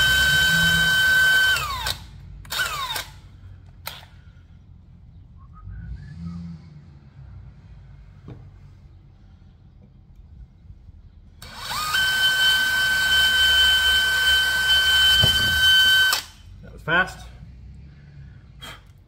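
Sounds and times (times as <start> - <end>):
cordless drill whining: 0.0 - 3.2, 11.4 - 16.4.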